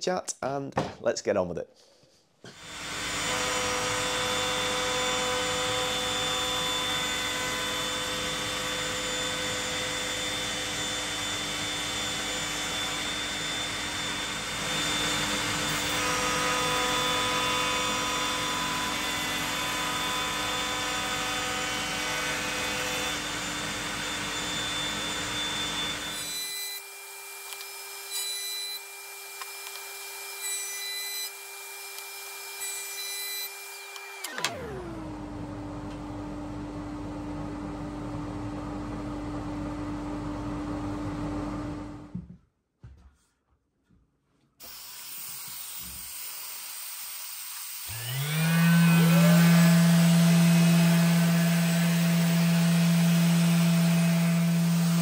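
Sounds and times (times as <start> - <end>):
router cutting wood: 2.4 - 35.3, 44.6 - 55.0
dust extractor running: 47.9 - 55.0.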